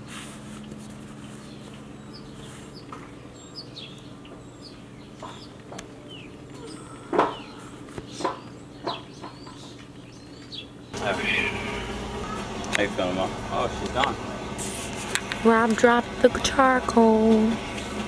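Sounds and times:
songbirds chirping and whistling: 0.0 - 12.8
harsh bird calls: 1.1 - 12.8.

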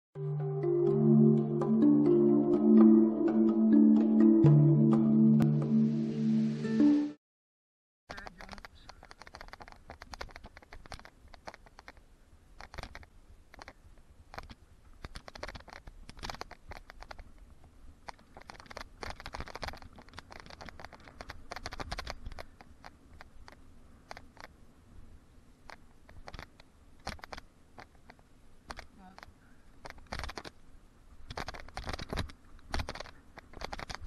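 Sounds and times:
bike clicks and rattles: 8.1 - 24.6, 25.6 - 30.6, 31.3 - 34.0.

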